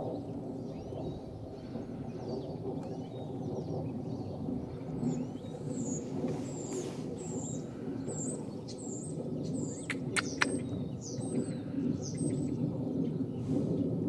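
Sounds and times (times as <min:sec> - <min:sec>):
low background rumble: 0:00.0 - 0:14.0
small bird chirping: 0:05.0 - 0:12.6
sharp clicks: 0:09.8 - 0:10.6.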